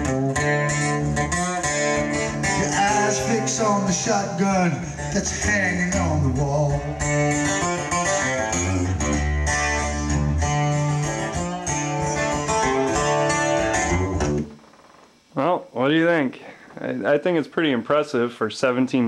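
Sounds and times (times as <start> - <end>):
guitar music through speakers: 0.0 - 14.6
strong bass line: 0.0 - 14.6.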